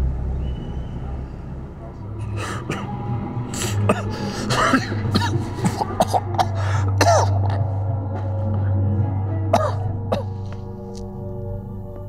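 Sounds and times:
man coughing and groaning: 2.2s - 7.8s, 9.5s - 10.4s.

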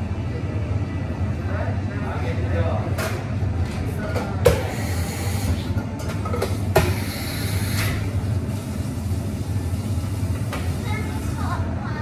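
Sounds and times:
equipment hum: 0.0s - 12.0s
espresso machine hiss: 4.6s - 5.6s, 6.8s - 8.0s.

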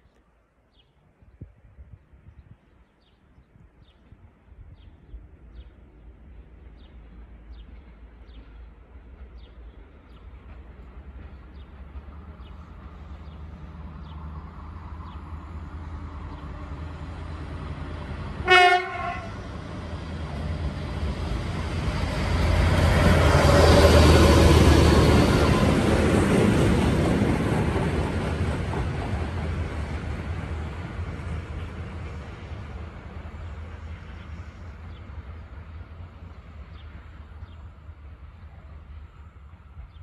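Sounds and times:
train rumble: 3.5s - 40.0s
train horn blast: 18.4s - 19.4s.

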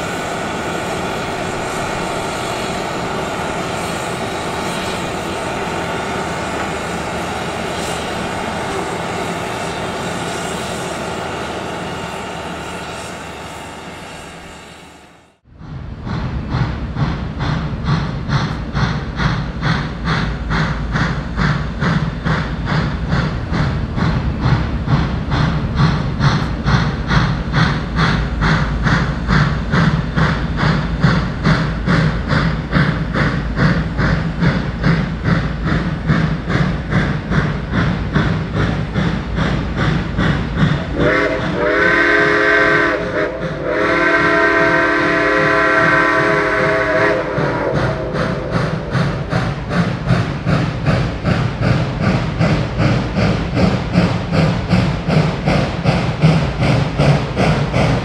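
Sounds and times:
steam locomotive chuffing: 0.0s - 58.0s
chime steam whistle blasts: 41.0s - 48.5s.

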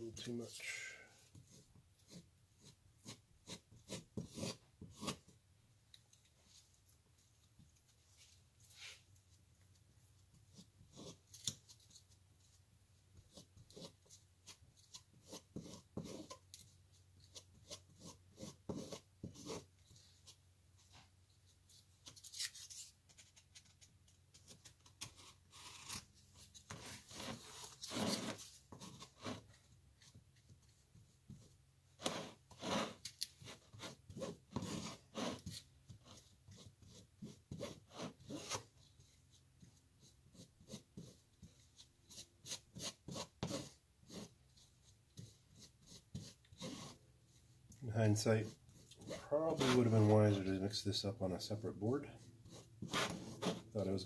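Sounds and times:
wooden stick scraping filler: 26.6s - 29.6s, 32.0s - 35.6s, 48.0s - 50.5s, 52.1s - 54.0s.

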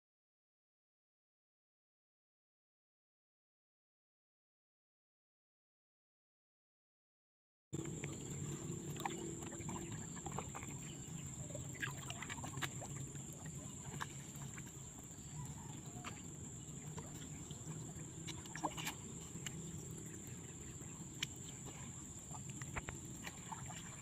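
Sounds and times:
small splashes: 7.8s - 24.0s
water lapping and dripping: 7.8s - 24.0s.

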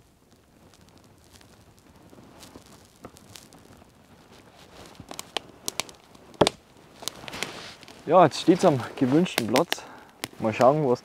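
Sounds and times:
campfire crackling: 0.0s - 11.0s
sharp fire pops: 0.0s - 11.0s.

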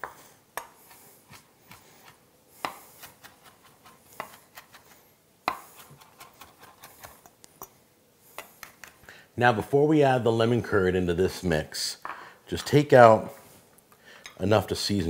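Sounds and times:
knife chopping on wooden board: 2.6s - 4.8s.

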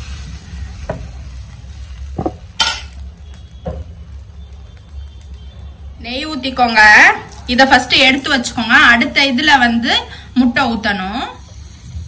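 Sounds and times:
batter sizzling on a pan: 0.0s - 12.0s
utensils knocking against pan: 2.2s - 3.0s
steady low hum: 11.3s - 12.0s.

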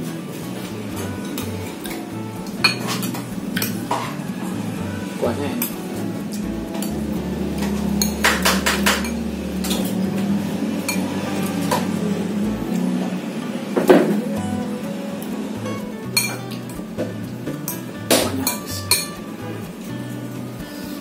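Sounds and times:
low hum: 0.0s - 20.7s
cutlery clinking on plates: 1.2s - 4.2s.

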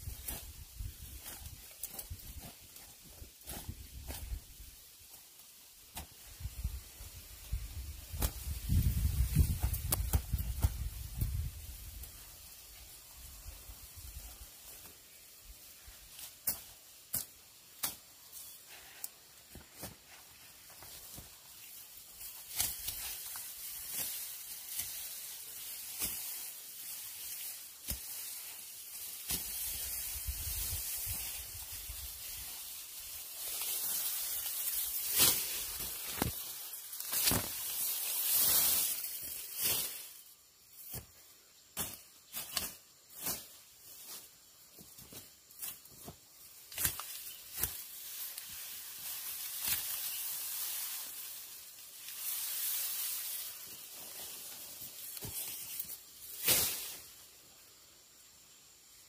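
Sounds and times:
steady high hiss: 0.0s - 59.0s
hand tool chopping soil and wood: 16.2s - 18.1s, 22.3s - 28.4s, 29.1s - 29.9s, 37.0s - 37.7s, 45.1s - 48.5s.

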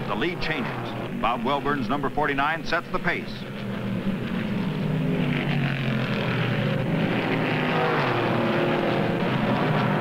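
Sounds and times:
racing car engines drone: 0.0s - 10.0s.

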